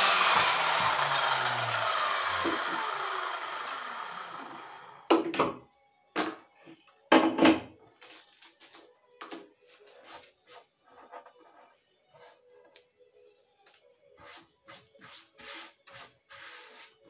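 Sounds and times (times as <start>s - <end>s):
power saw running: 0.0s - 5.1s
sawdust brushed by hand: 14.2s - 17.0s.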